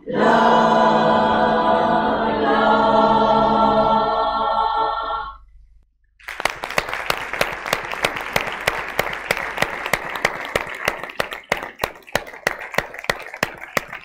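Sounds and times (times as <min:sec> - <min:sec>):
audience applauding: 0:06.2 - 0:14.0.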